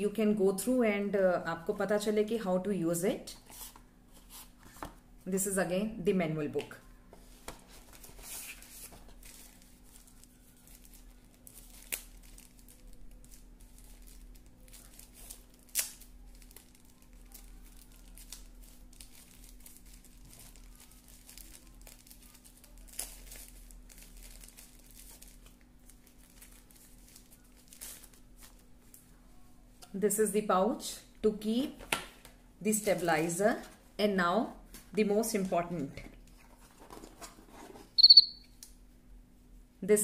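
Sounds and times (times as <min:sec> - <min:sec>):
plastic wrap crinkling: 0:07.3 - 0:29.2.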